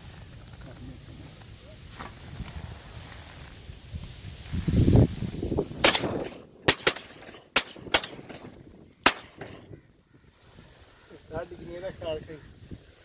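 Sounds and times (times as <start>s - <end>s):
shotguns firing: 5.8s - 9.8s.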